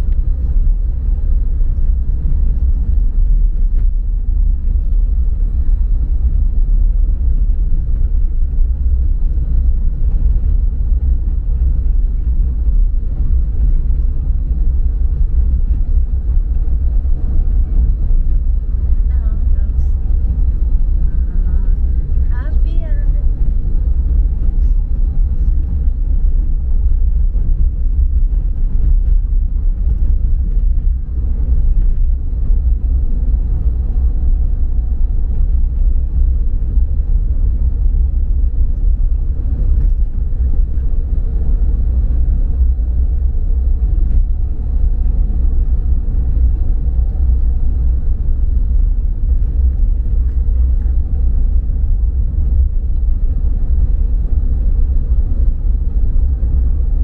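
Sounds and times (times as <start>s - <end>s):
car road rumble inside cabin: 0.0s - 57.0s.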